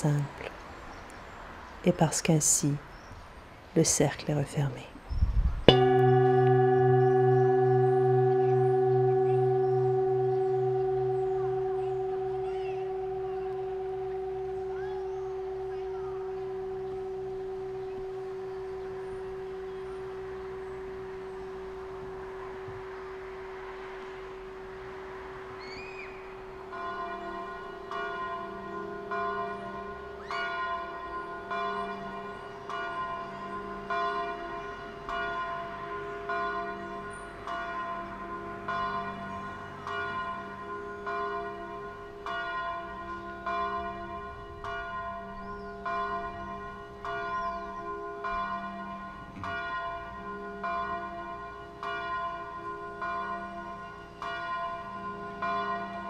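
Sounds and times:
bell struck repeatedly: 5.7s - 20.0s
steady ringing tone: 5.7s - 21.2s.

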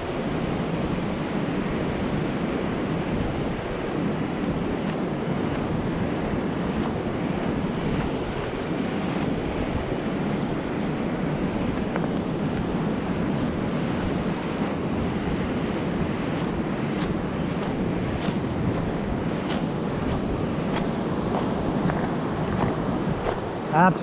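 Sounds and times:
wind buffeting microphone: 0.0s - 24.0s
surf breaking on cobble beach: 0.2s - 24.0s.

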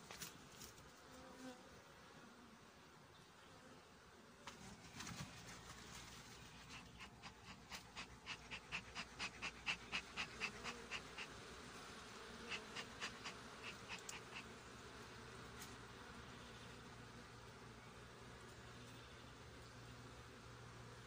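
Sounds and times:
bellows smoker puffing: 6.5s - 14.7s.

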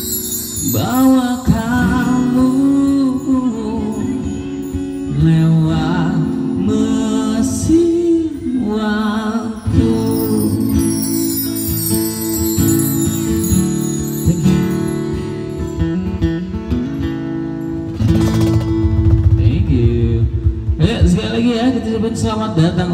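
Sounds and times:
person singing with vibrato: 0.0s - 15.6s
backing instruments: 0.0s - 21.2s.

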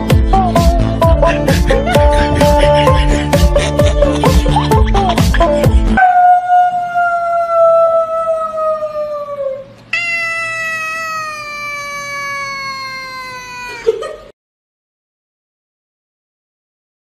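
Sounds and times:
background music: 0.0s - 6.0s
cat meowing: 9.9s - 13.9s.

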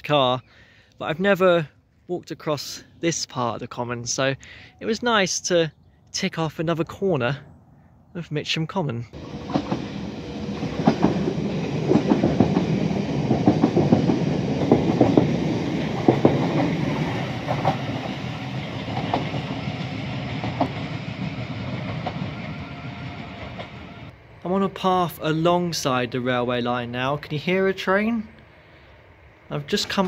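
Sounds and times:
train wheels clattering over rail joints: 9.2s - 22.4s.

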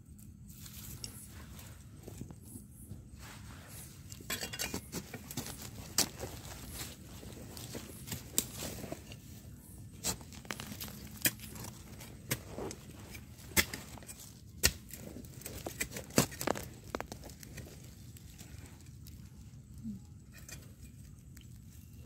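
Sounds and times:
dry leaves rustling: 0.4s - 2.3s, 3.2s - 20.0s
twigs snapping: 10.0s - 19.3s.

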